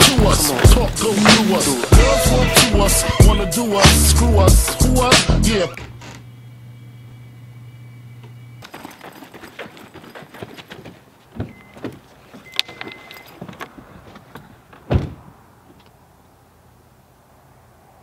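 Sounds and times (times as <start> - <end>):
rustling and clicking handling: 0.0 - 2.0, 8.6 - 14.9
car door shutting: 14.9 - 15.3.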